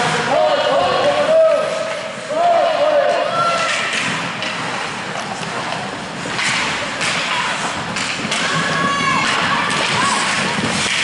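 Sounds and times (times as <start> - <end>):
skates scraping on ice: 0.0 - 11.0
hockey sticks knocking puck: 3.5 - 11.0.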